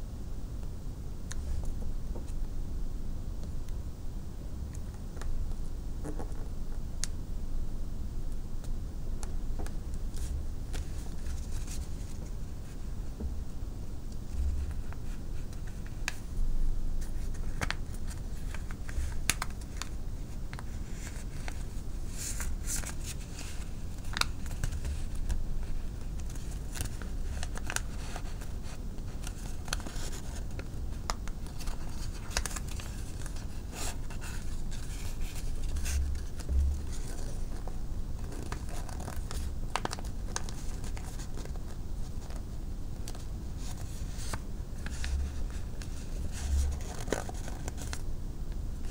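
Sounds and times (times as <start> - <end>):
low steady hum: 0.0 - 48.9
paper folding and creasing: 17.0 - 42.4, 43.0 - 48.0.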